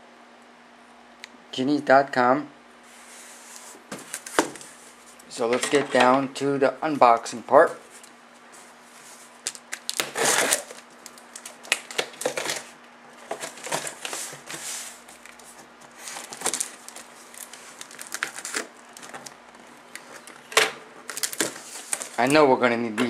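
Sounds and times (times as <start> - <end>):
tape ripping: 9.4 - 12.7, 13.4 - 20.3, 21.1 - 22.4
scissors cutting packing tape: 9.5 - 12.6.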